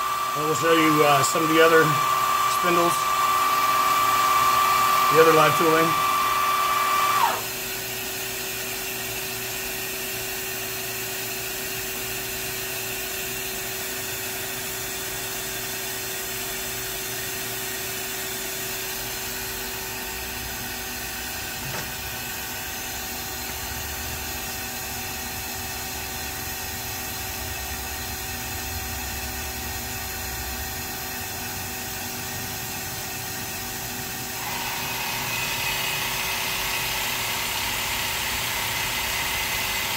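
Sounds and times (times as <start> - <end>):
machine humming: 0.0 - 7.4
loud machine running: 0.0 - 7.7, 32.4 - 39.9.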